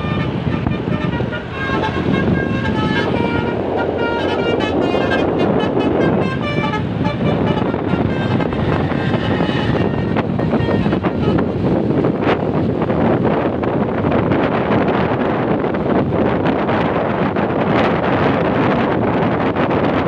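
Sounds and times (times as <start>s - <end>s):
musical bus horn tooting: 0.0s - 11.8s
motorcycles passing: 0.0s - 13.2s
bus engine: 0.0s - 20.0s.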